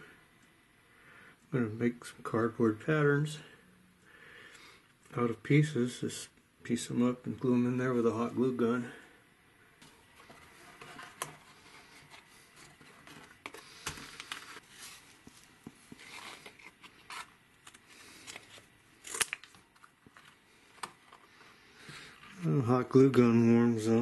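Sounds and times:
cardboard rustling: 9.9s - 18.7s.

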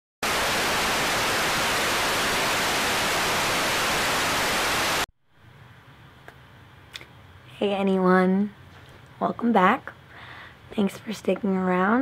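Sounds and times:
loud static hiss: 0.2s - 5.1s.

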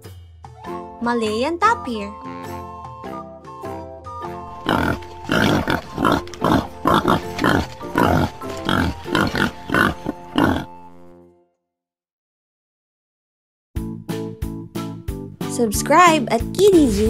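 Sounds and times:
light background music: 0.0s - 11.5s, 13.8s - 17.0s
tapir making short rough sounds: 4.5s - 10.7s.

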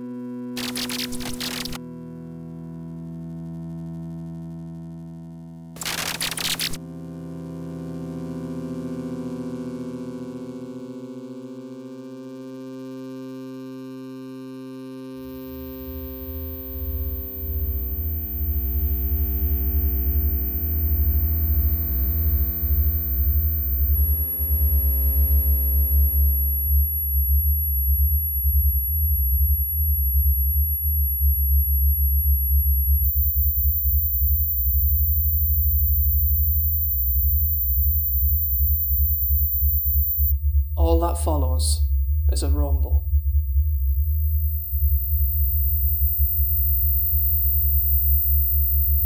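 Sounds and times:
sustained synthesizer chords: 6.8s - 49.0s
deep fluttering low drone: 15.5s - 49.0s
faint high thin whine: 33.0s - 43.1s.

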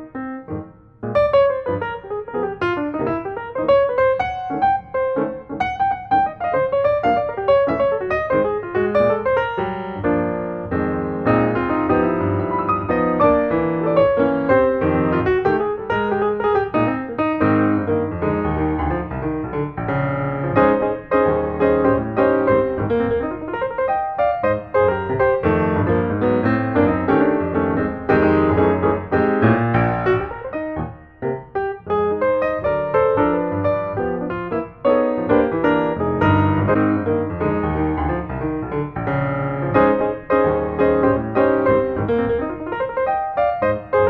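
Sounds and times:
piano music: 0.0s - 44.0s.

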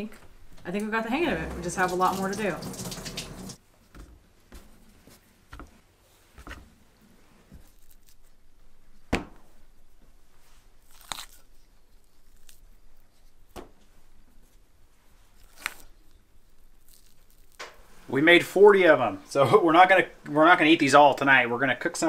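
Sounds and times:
quiet handling of dough: 3.6s - 18.2s.

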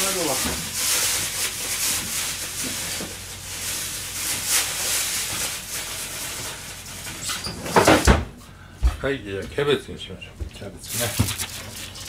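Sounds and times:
kitchen hiss: 0.0s - 7.0s, 10.8s - 12.0s.

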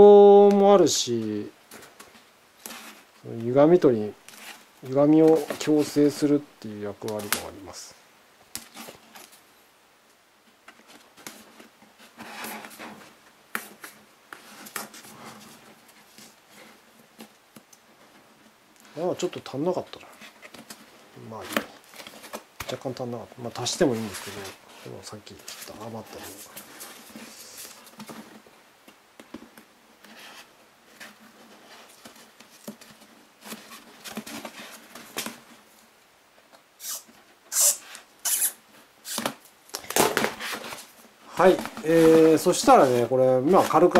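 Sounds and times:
foam rubbing and rustling: 1.6s - 7.8s, 10.8s - 43.9s
hands rubbing foam: 36.8s - 39.2s
short scrapes: 36.8s - 39.3s.

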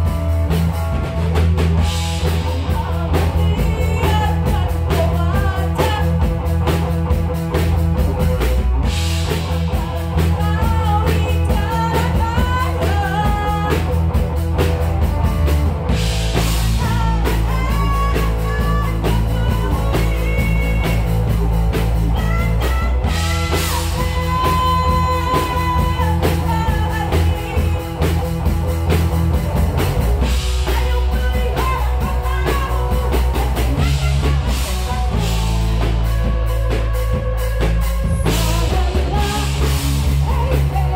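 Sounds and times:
bass guitar: 0.0s - 40.9s
drum kit: 0.0s - 40.9s
electric guitar: 0.0s - 40.9s
person singing: 2.4s - 6.5s, 9.6s - 14.0s, 16.4s - 28.2s, 30.6s - 40.9s.

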